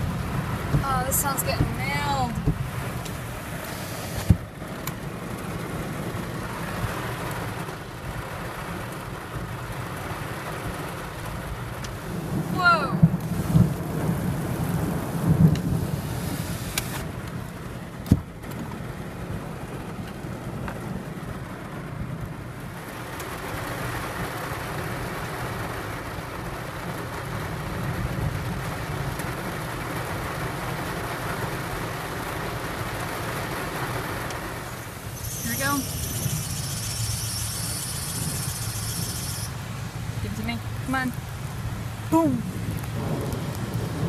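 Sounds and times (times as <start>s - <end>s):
thunder rumble: 0.0s - 6.6s, 12.1s - 18.4s, 41.6s - 44.0s
heavy rain on a car: 0.0s - 44.0s.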